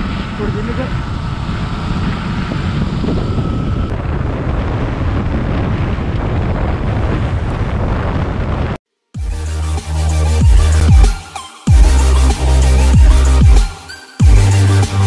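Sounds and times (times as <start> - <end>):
wind buffeting microphone: 0.0 - 8.8.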